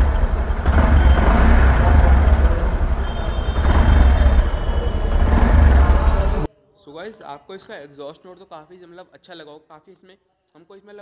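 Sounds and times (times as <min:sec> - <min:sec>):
motorcycle engine running: 0:00.0 - 0:06.5.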